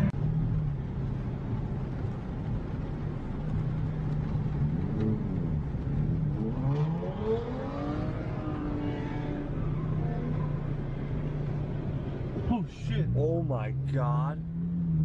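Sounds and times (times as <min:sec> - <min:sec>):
car engine revving: 0:04.0 - 0:15.0.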